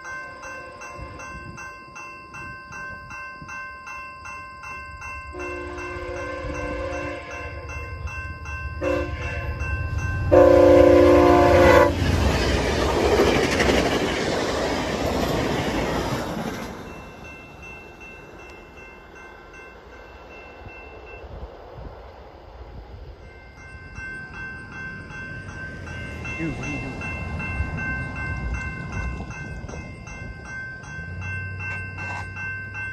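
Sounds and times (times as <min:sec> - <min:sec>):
crossing bell ringing: 0:00.0 - 0:21.4, 0:23.0 - 0:32.9
train passing with wheel noise: 0:00.0 - 0:32.9
train horn chord: 0:05.3 - 0:07.7, 0:08.8 - 0:09.6, 0:10.2 - 0:12.0.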